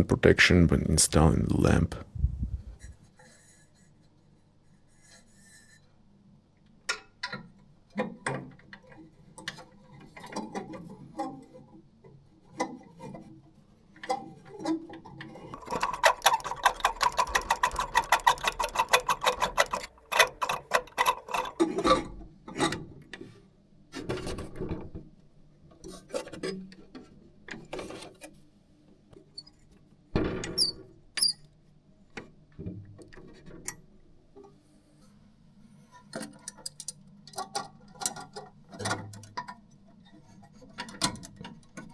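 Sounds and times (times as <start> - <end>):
low steady hum: 0.0 - 3.0
tools and metal fittings clicking: 15.5 - 22.0
rapid ratcheting clicks: 15.6 - 21.6.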